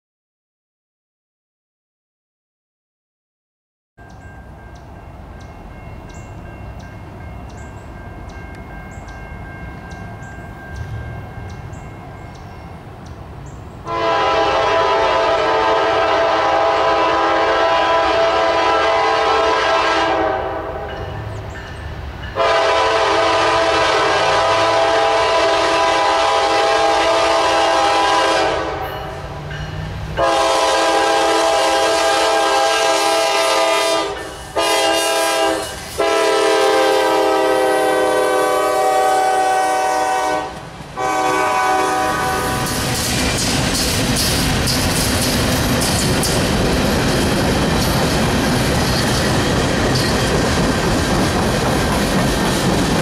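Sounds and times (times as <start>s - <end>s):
freight train rumble: 4.0s - 53.0s
locomotive air horn blasts: 13.8s - 21.0s, 22.4s - 29.1s, 30.2s - 42.8s.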